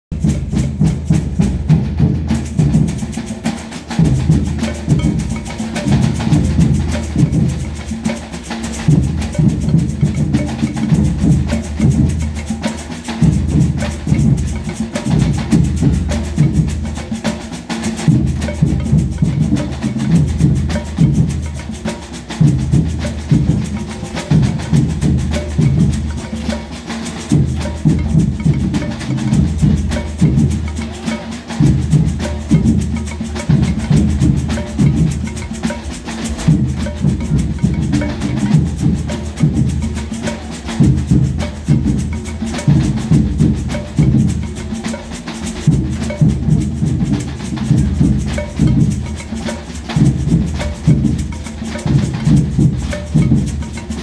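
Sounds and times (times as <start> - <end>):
hand percussion: 0.0 - 54.0
rattling snare drums: 0.1 - 54.0
bass drums beating: 4.0 - 7.9, 27.3 - 44.9, 45.6 - 54.0.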